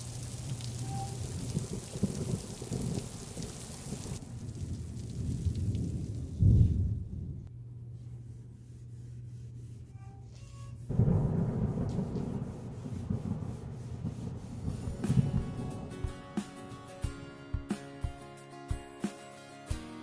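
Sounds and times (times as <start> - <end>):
rag scrubbing wooden handle: 8.3 - 10.6.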